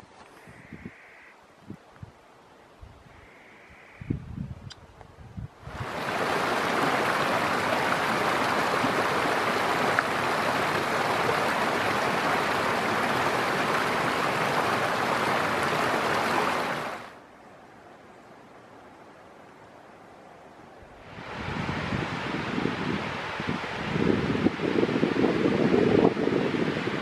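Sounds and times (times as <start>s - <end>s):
creek rushing over rocks: 5.6s - 17.2s.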